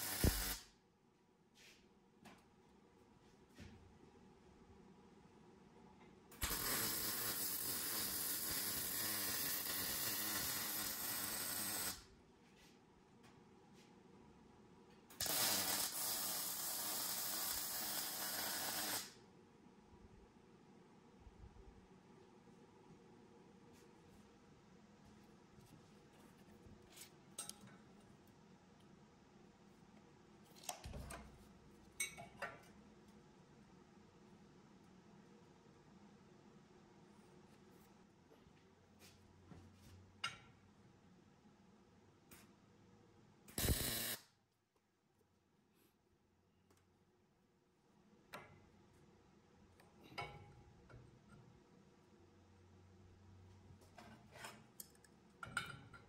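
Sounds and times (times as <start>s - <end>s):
shop tool hissing: 0.0s - 0.6s, 6.4s - 12.0s, 15.2s - 19.2s, 43.6s - 44.2s.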